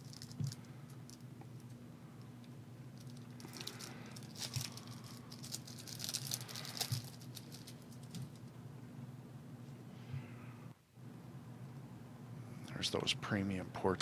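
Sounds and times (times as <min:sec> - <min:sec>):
trading cards rustling and clicking: 0:03.0 - 0:08.5.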